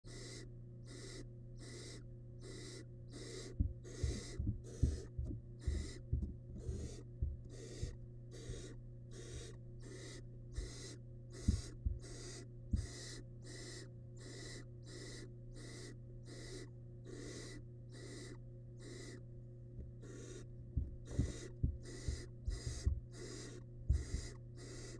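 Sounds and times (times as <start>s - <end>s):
steady low hum: 0.0s - 24.9s
owl chicks rasping hisses: 0.1s - 19.2s, 20.0s - 24.9s
low thumps and knocks: 3.6s - 7.5s, 20.7s - 23.2s.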